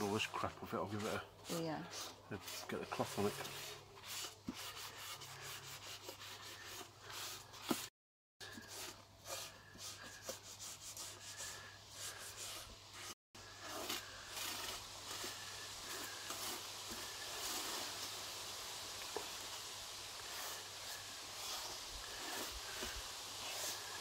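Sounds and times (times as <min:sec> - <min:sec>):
paper towel wiping griddle: 0:00.0 - 0:18.3, 0:20.2 - 0:24.0.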